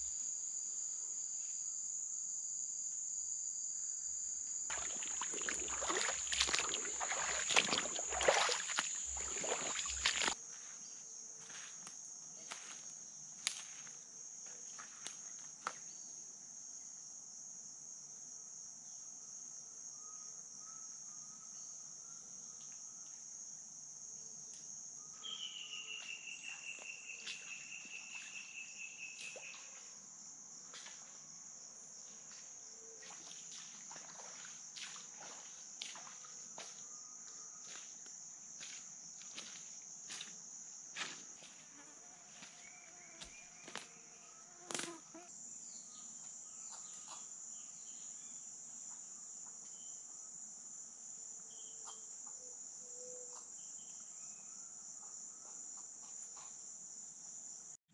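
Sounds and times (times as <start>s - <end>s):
insects droning: 0.0s - 57.8s
feet splashing through water: 4.7s - 10.4s, 33.0s - 36.8s.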